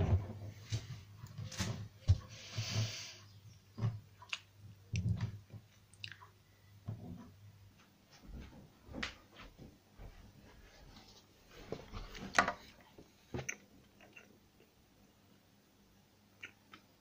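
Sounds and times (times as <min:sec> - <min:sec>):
person chewing and lip smacking: 0:05.9 - 0:06.3.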